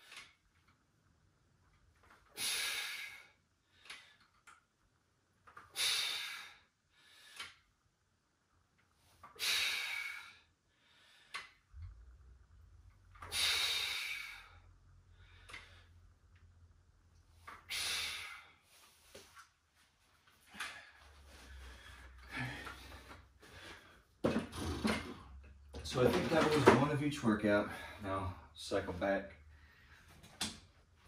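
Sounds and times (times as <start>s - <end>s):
man breathing heavily: 2.3s - 4.4s, 5.7s - 7.7s, 9.3s - 11.7s, 13.2s - 16.3s, 17.3s - 19.2s, 20.4s - 24.2s, 29.4s - 30.3s
forceful exhales: 13.2s - 15.9s.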